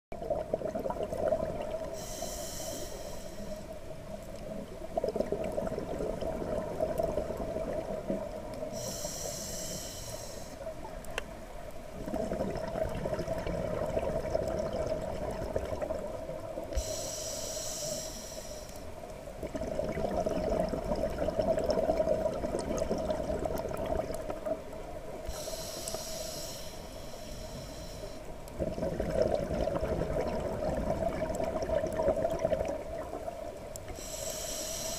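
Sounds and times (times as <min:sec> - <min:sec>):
exhaled bubbles rushing: 0:00.1 - 0:02.0, 0:05.0 - 0:08.4, 0:12.0 - 0:16.6, 0:19.4 - 0:24.6, 0:28.6 - 0:33.4
scuba regulator inhale hiss: 0:01.8 - 0:03.8, 0:08.7 - 0:10.7, 0:16.7 - 0:18.9, 0:25.3 - 0:28.3, 0:33.9 - 0:34.9.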